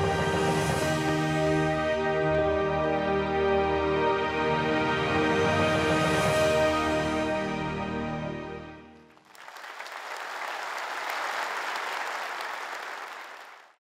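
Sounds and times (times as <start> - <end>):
orchestral music: 0.0 - 9.1
audience applauding: 9.1 - 13.8.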